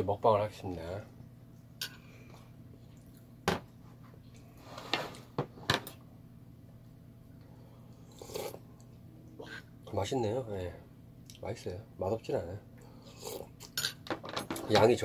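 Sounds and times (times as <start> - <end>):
soft sip: 7.9 - 9.7.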